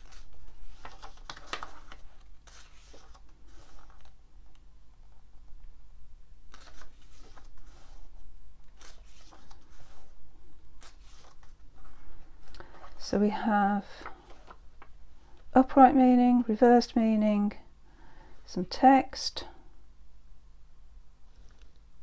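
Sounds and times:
paper pages rustling: 0:00.0 - 0:04.2, 0:06.5 - 0:10.2, 0:10.8 - 0:13.0, 0:14.0 - 0:15.0.

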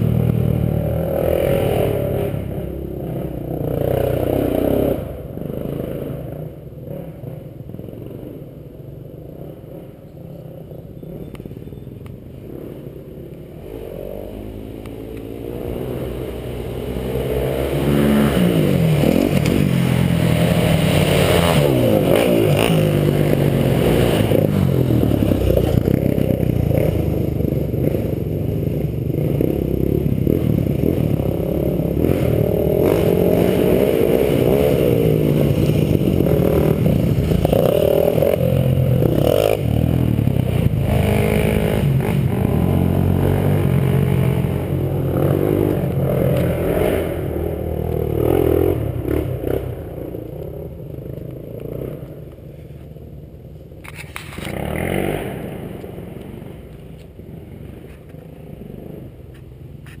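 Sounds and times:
dirt bike engine revving: 0:00.0 - 0:52.1, 0:53.8 - 0:57.9.

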